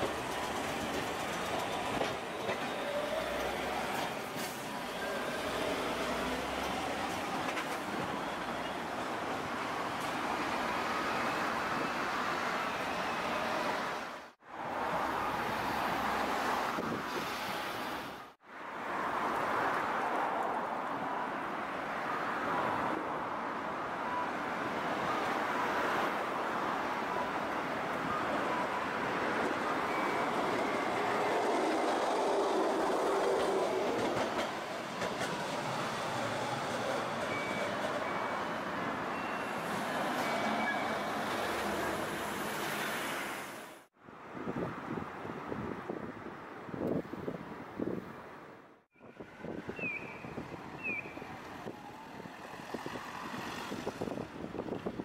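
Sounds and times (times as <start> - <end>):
streetcar running on track: 0.0 - 16.6, 26.6 - 43.4
road traffic noise: 0.0 - 55.0.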